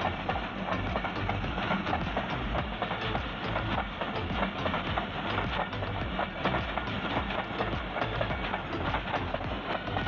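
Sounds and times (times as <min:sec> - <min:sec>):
train wheels rushing: 0:00.0 - 0:10.0
wheels clacking over rail joints: 0:00.0 - 0:10.0.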